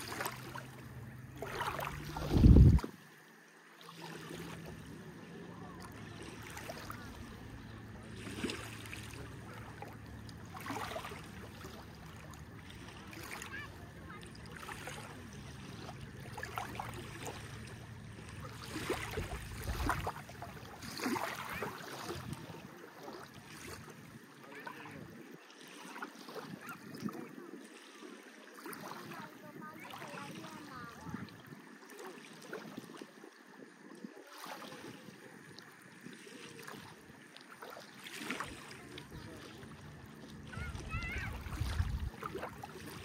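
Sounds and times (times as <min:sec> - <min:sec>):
low engine hum: 0:00.0 - 0:25.3, 0:38.3 - 0:43.0
small waves lapping: 0:00.0 - 0:43.0.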